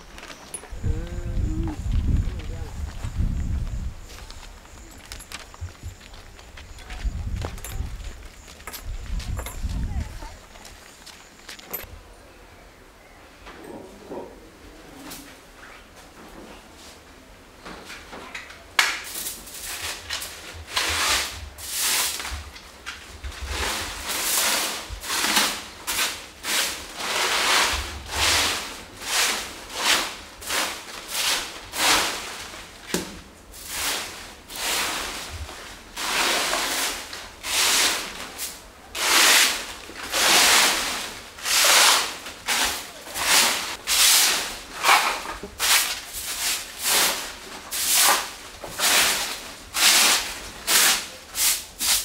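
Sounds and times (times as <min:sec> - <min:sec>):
broom sweeping a floor: 0:19.0 - 0:52.0.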